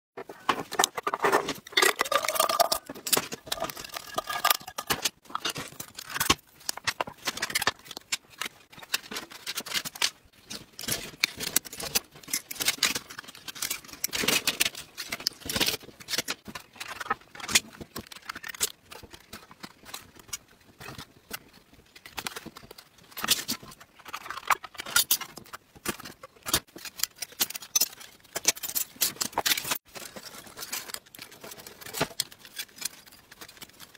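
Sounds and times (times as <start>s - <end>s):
metal cans crinkling: 0.3s - 21.4s.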